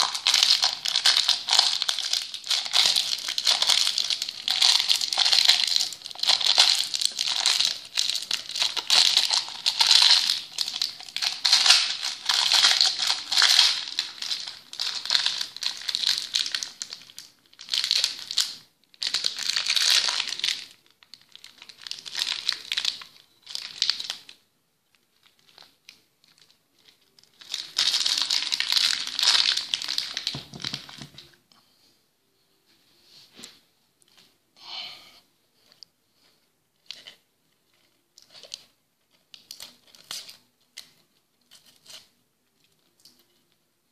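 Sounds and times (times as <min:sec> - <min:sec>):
plastic bag crinkling: 0:00.0 - 0:31.4.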